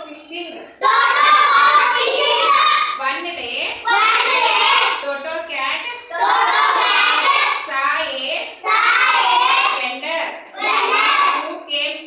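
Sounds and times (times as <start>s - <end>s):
children chanting aloud together: 0.8s - 3.0s, 3.8s - 5.0s, 6.0s - 7.7s, 8.5s - 9.8s, 10.5s - 11.5s.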